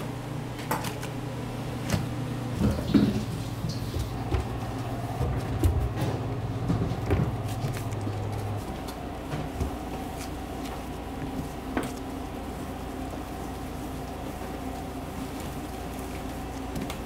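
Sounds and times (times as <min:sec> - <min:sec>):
kitchen equipment humming: 0:00.0 - 0:17.0
low mechanical drone: 0:00.0 - 0:17.0.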